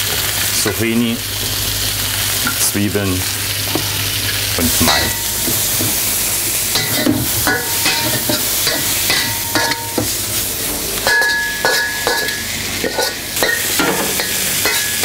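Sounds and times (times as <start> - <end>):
food sizzling in a wok: 0.0 - 15.0
metal spatula clinking on wok: 6.8 - 9.9, 11.0 - 15.0.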